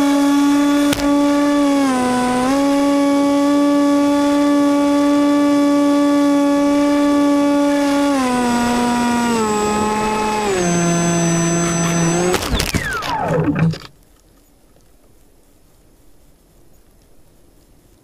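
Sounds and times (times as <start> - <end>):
model plane motor whining: 0.0 - 13.9.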